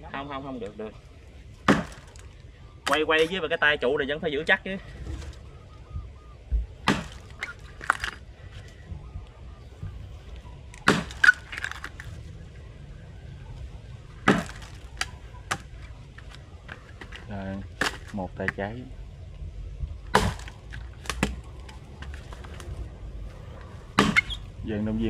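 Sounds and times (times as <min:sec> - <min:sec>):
axe chopping into log: 0:01.6 - 0:02.2, 0:06.8 - 0:07.4, 0:10.8 - 0:11.4, 0:14.2 - 0:15.7, 0:20.1 - 0:21.4, 0:24.0 - 0:24.4.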